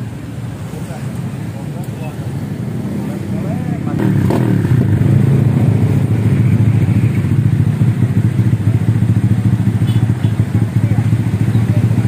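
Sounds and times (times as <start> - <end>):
scooter engine idling: 5.6 - 12.0.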